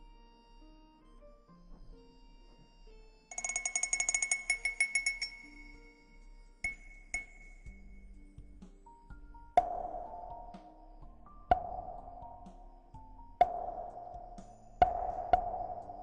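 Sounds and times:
soft slow background music: 0:00.0 - 0:16.0
high chime tinkling: 0:03.3 - 0:08.2.

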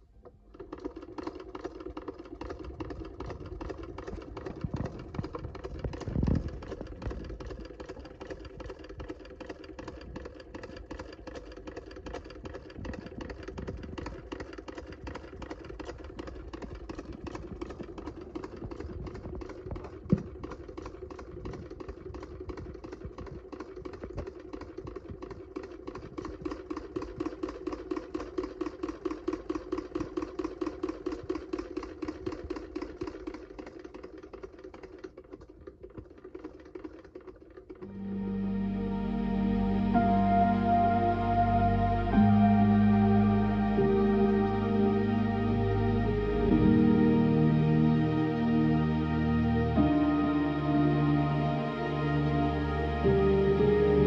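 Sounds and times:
sewing machine clatter: 0:00.0 - 0:37.9.

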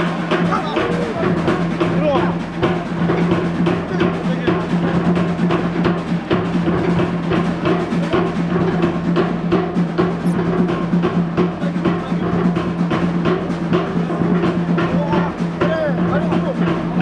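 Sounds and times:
fast drum beats: 0:00.0 - 0:17.0.

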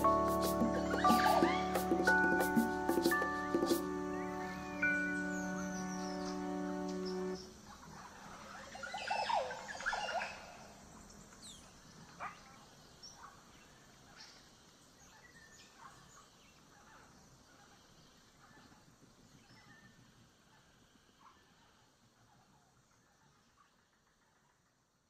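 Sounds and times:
held music chord: 0:00.0 - 0:07.5
wavering bird calls: 0:00.0 - 0:10.8
birds calling: 0:00.0 - 0:11.2.

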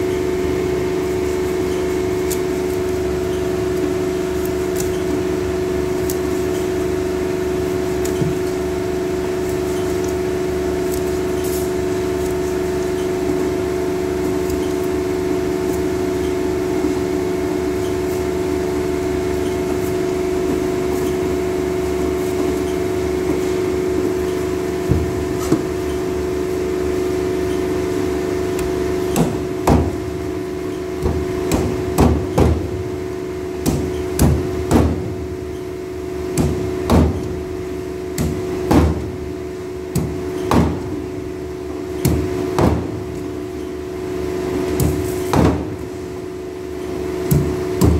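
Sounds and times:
machine hum: 0:00.0 - 0:47.9
cleaver chopping fish: 0:33.6 - 0:35.0, 0:47.3 - 0:47.9.

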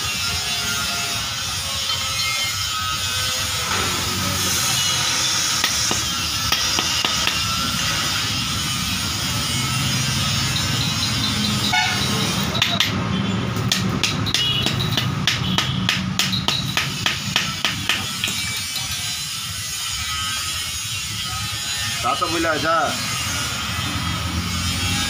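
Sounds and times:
hammer knocking on metal: 0:05.6 - 0:07.5, 0:13.7 - 0:18.4.

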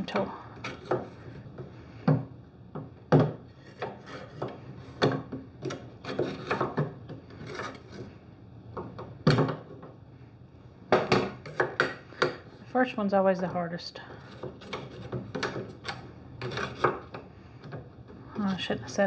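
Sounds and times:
knife scraping wood: 0:03.5 - 0:05.0, 0:05.6 - 0:08.1, 0:14.1 - 0:17.2.

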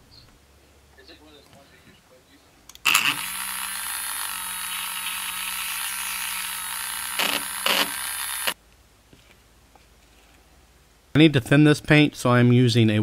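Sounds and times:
electric paint mixer whirring: 0:02.8 - 0:08.6.

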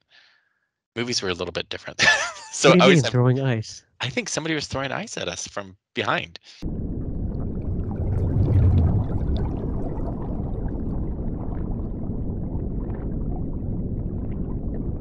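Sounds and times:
muffled underwater rumble: 0:06.6 - 0:15.0.

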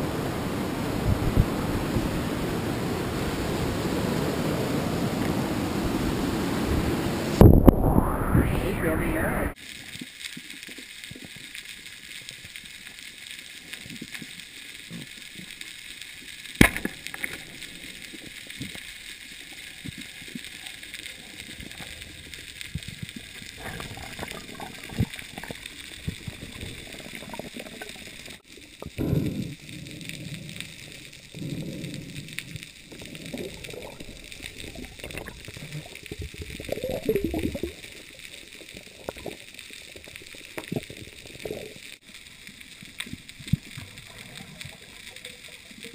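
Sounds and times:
underwater hiss: 0:06.4 - 0:45.9
water gurgling and sloshing: 0:16.6 - 0:45.9.

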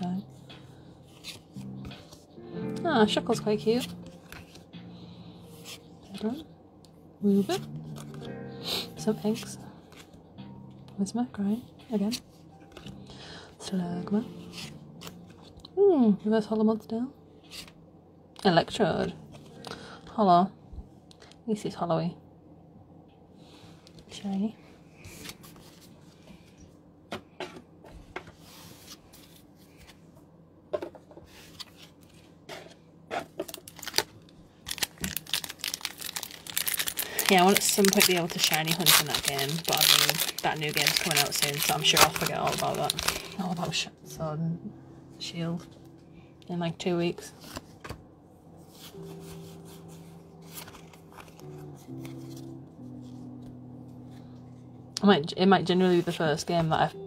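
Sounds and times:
soft background music: 0:00.0 - 0:57.0
wrapper rustling: 0:33.2 - 0:43.9.

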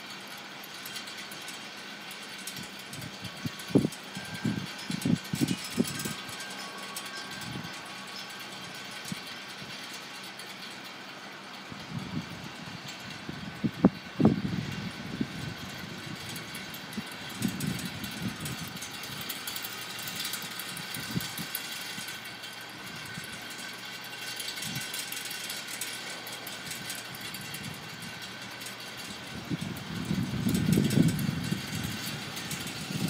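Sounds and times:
steady outdoor hiss: 0:00.0 - 0:33.0
wind blowing across microphone: 0:02.5 - 0:09.9, 0:11.7 - 0:22.2, 0:24.5 - 0:25.0, 0:26.6 - 0:33.0.

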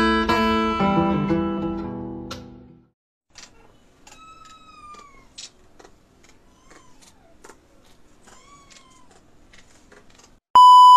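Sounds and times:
kitten meowing faintly: 0:03.6 - 0:05.4.

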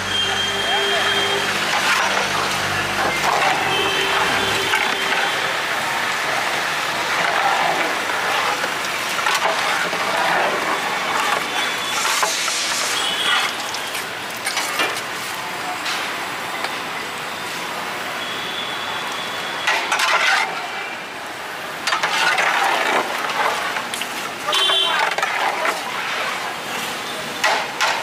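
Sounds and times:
street traffic: 0:00.0 - 0:28.0
metal ladle stirring in pot: 0:06.8 - 0:14.9, 0:21.9 - 0:23.9.

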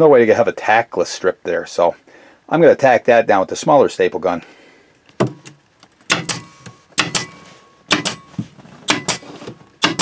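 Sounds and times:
staple gun firing into carpet: 0:07.9 - 0:08.2.

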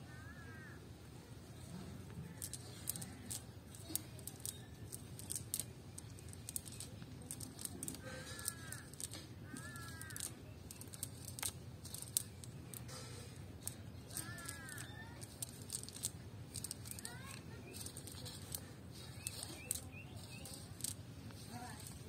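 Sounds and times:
wet net rustling and clicking: 0:02.3 - 0:17.1.

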